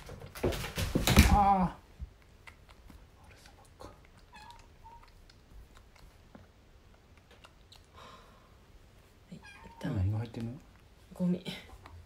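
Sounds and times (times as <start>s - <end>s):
kitten sucking on bottle nipple: 2.1s - 8.0s
kitten squeak: 4.3s - 5.1s, 9.4s - 10.0s.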